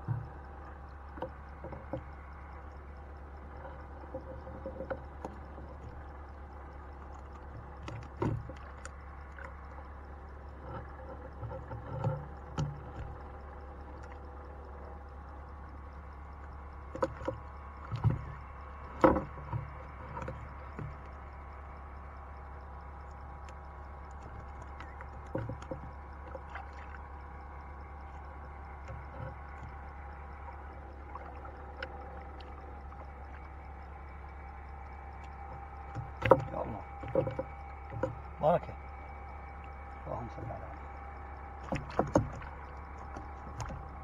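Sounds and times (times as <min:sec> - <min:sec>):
steady low hum: 0:00.0 - 0:44.0
knocks against wooden boat: 0:19.0 - 0:21.0, 0:35.9 - 0:38.3, 0:41.6 - 0:43.9.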